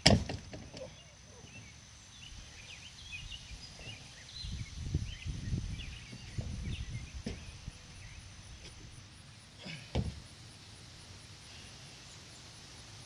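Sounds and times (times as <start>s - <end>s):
wind buffeting microphone: 4.3s - 8.2s
heavy thump: 6.1s - 7.6s, 9.7s - 10.2s.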